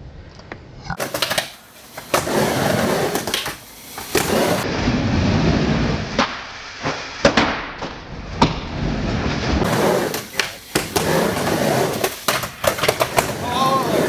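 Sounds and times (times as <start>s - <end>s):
skateboard wheels rolling on plywood: 1.0s - 14.0s
skateboard clacking on ramp: 3.1s - 4.3s, 9.7s - 14.0s.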